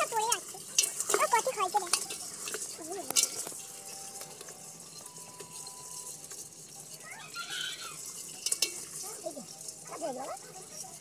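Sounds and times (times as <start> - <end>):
crabs and fish rustling in net: 0.0 - 11.0
faint voices: 6.8 - 11.0.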